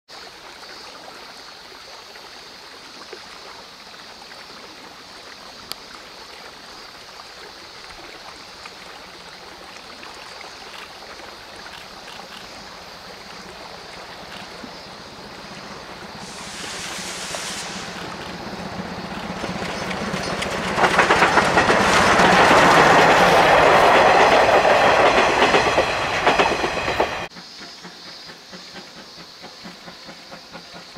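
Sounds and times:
faint steady hiss: 0:00.2 - 0:19.9
steam locomotive approaching: 0:10.7 - 0:30.9.

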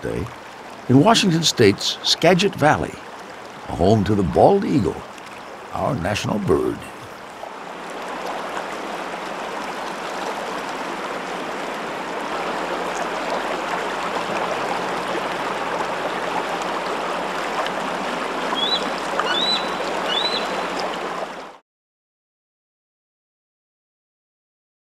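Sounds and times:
flowing water rushing: 0:00.0 - 0:21.6
eagle calling: 0:18.5 - 0:20.8.

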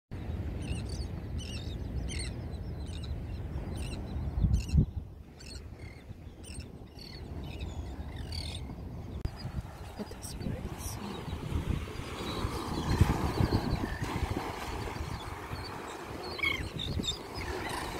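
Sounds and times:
wind rumble on microphone: 0:00.2 - 0:17.9
gulls calling: 0:05.4 - 0:17.9.

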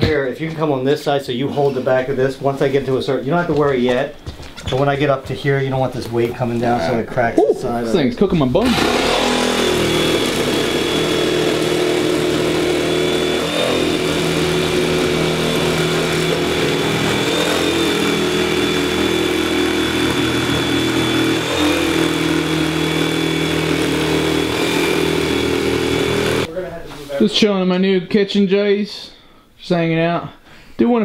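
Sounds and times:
electric jigsaw cutting panelling: 0:08.6 - 0:26.5.

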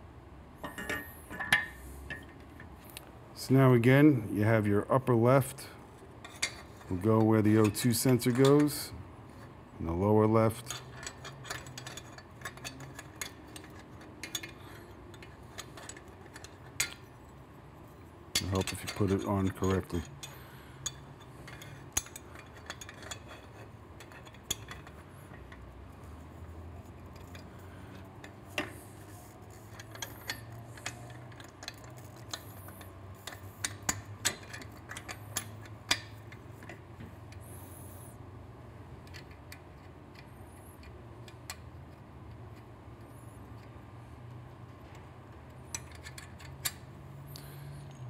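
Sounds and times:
low steady hum: 0:00.0 - 0:48.0
metal nuts clinking: 0:00.6 - 0:02.7, 0:10.3 - 0:17.4, 0:18.3 - 0:25.7, 0:26.3 - 0:36.8.

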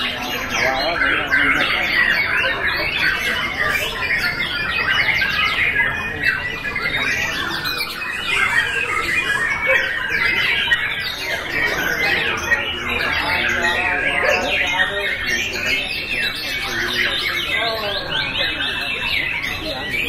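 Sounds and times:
birds singing in chorus: 0:00.0 - 0:20.0.

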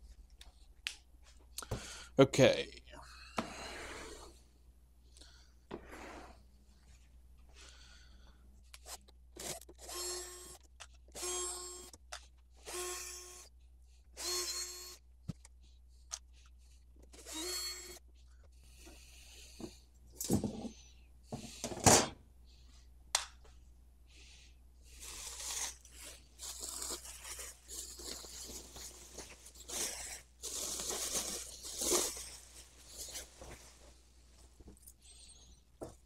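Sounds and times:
cordless drill whirring: 0:08.9 - 0:12.0, 0:12.6 - 0:13.5, 0:14.2 - 0:15.0, 0:17.1 - 0:18.0
plastic packing rustling: 0:25.0 - 0:33.9.

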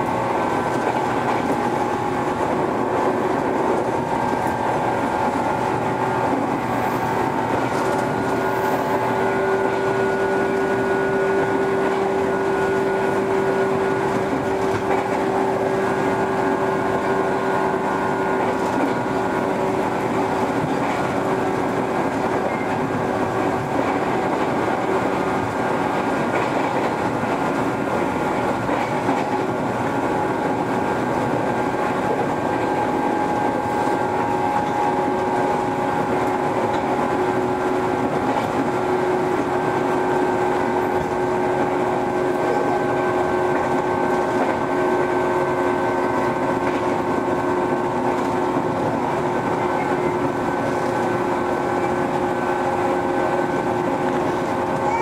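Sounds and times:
electric train running whine: 0:00.0 - 0:55.0
wheels rumbling on rails: 0:00.0 - 0:55.0
clatter over rail joints: 0:13.2 - 0:16.4, 0:18.3 - 0:37.3.

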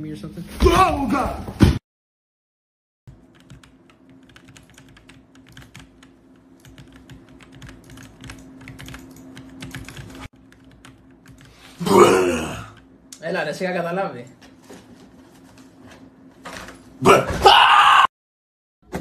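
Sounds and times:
typing on a computer keyboard: 0:03.1 - 0:11.5.

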